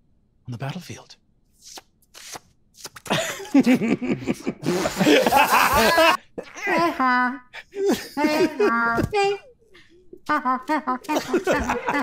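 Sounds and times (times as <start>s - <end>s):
men laughing loudly: 3.1s - 9.0s, 10.3s - 12.0s.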